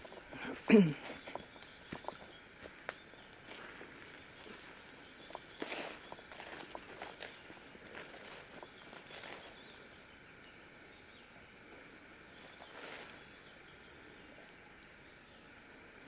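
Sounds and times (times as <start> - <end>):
high insect hum: 0.0 - 16.0
steps swishing through undergrowth: 5.6 - 9.7.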